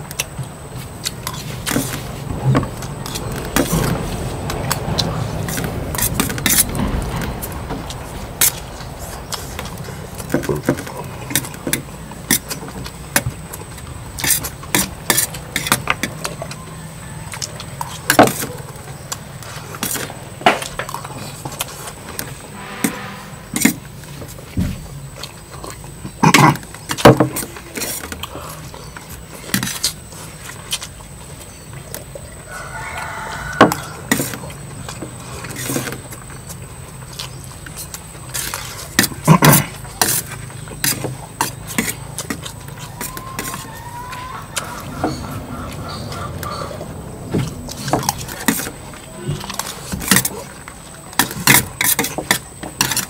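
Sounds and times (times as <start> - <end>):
rooster crowing: 16.4 - 17.8, 32.4 - 34.4, 42.8 - 48.0.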